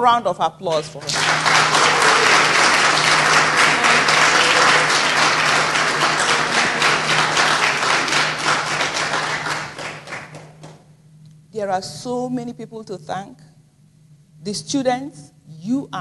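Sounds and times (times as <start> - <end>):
audience applauding: 0.8 - 10.8.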